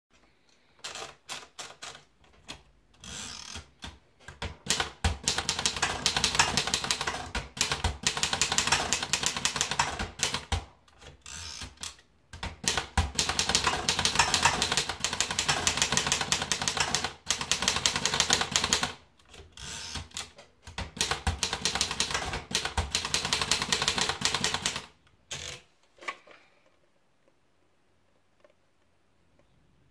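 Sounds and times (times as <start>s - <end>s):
typewriter carriage return: 0.8s - 2.6s, 3.2s - 25.6s
rapid typewriter keystrokes: 3.5s - 25.5s
paper feeding into typewriter: 12.4s - 18.9s.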